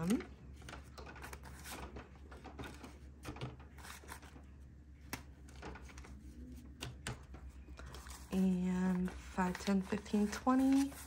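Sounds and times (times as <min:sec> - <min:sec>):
low steady hum: 0:00.0 - 0:11.0
paper banknotes rustling: 0:00.0 - 0:11.0.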